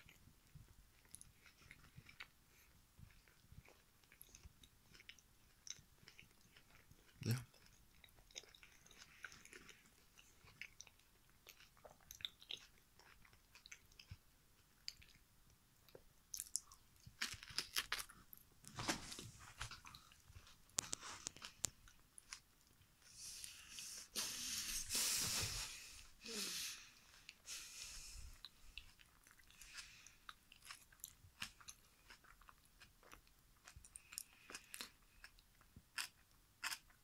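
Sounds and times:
wet chewing mouth clicks: 15.9s - 18.0s.

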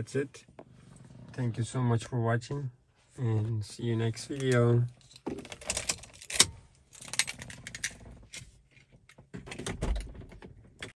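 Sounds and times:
car keys jangling: 4.4s - 8.4s.

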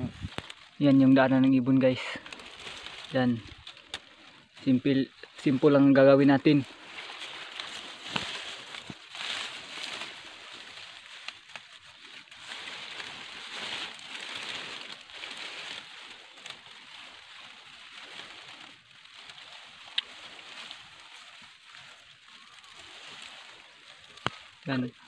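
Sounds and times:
dry grass rustling and crackling: 0.0s - 25.0s.

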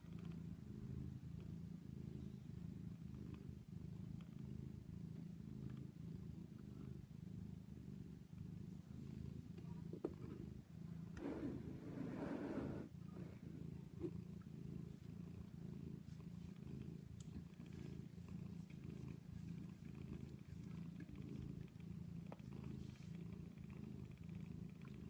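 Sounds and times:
cats purring: 0.0s - 25.0s.

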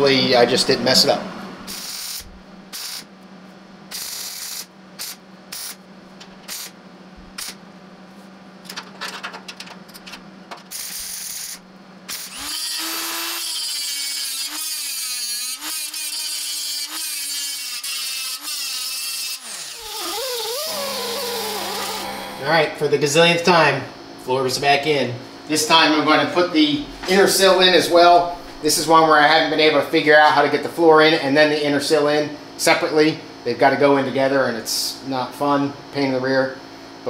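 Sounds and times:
angle grinder whining: 12.1s - 22.9s.

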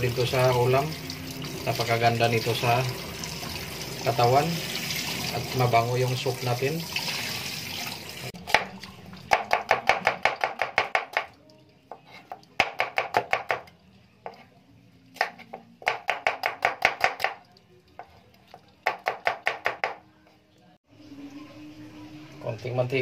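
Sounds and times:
knife slicing onions on cutting board: 15.1s - 17.4s.

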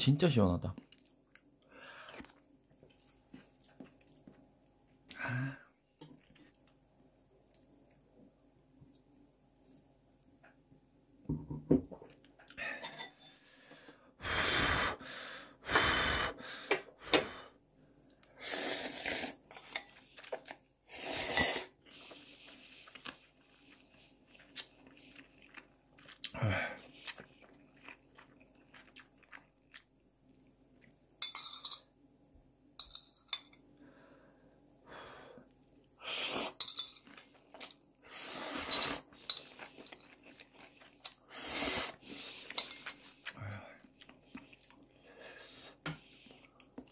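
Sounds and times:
utensils clinking on bowl: 12.8s - 13.5s, 19.5s - 20.0s, 31.2s - 31.9s, 32.8s - 33.6s, 36.6s - 37.4s, 38.6s - 40.5s, 42.5s - 43.0s
chewing: 21.9s - 30.0s, 39.2s - 41.4s, 42.2s - 45.0s
noodles being slurped: 38.0s - 43.1s.

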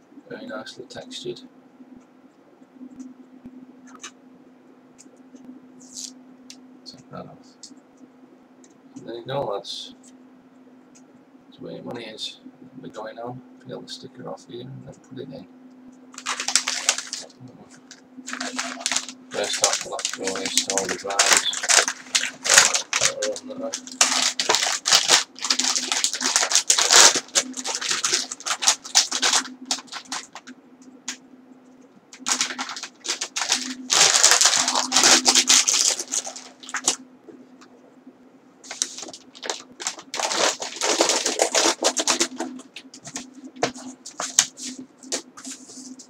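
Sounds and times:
plastic packaging crinkling: 16.1s - 30.5s, 32.2s - 37.0s, 38.7s - 45.7s.

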